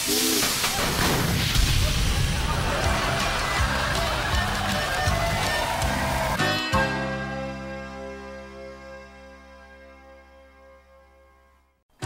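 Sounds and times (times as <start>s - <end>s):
steam hissing from a jet: 0.0s - 2.6s.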